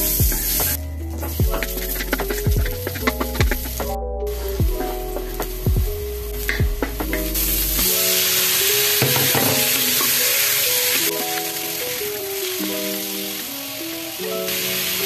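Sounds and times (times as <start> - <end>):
food sizzling in a wok: 7.4 - 13.8, 14.5 - 15.0.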